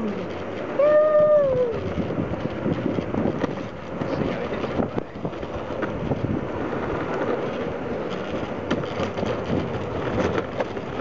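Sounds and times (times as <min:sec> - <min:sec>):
longboard wheels rolling on asphalt: 0:00.0 - 0:11.0
wind buffeting microphone: 0:00.0 - 0:11.0.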